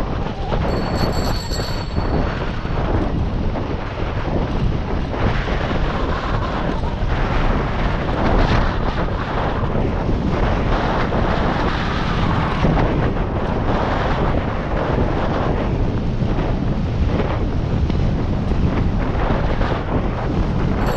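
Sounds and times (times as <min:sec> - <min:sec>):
wind buffeting microphone: 0:00.0 - 0:20.9
high ringing tone: 0:00.5 - 0:02.8.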